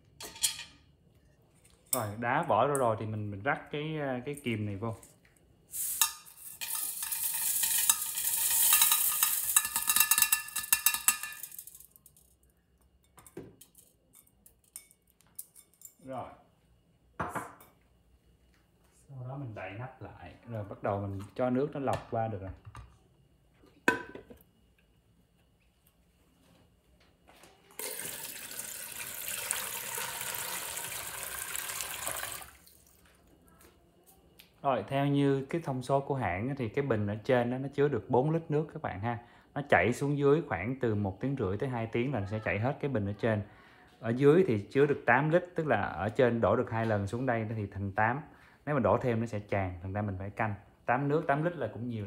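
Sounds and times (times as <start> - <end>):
water pouring into tank: 27.8 - 33.0.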